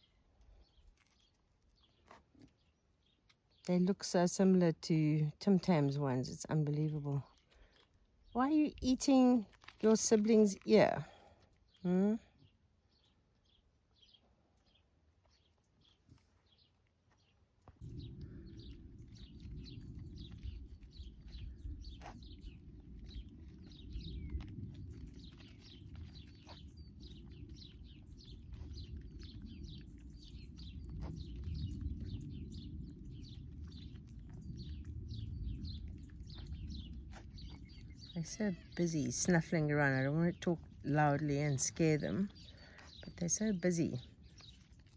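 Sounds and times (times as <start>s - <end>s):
small birds chirping: 0.0s - 44.9s
low rumble: 17.6s - 44.9s.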